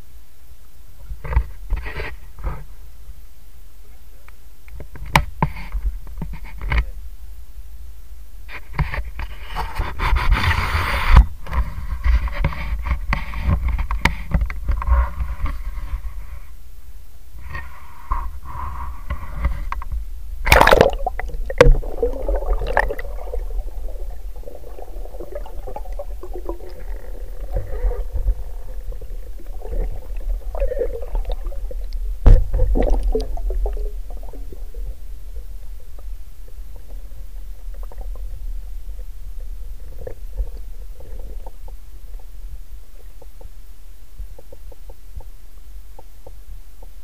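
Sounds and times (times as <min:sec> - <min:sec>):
low underwater rumbling: 0:18.4 - 0:45.4
underwater gurgling: 0:19.1 - 0:43.6
camera splashing into water: 0:20.5 - 0:23.1.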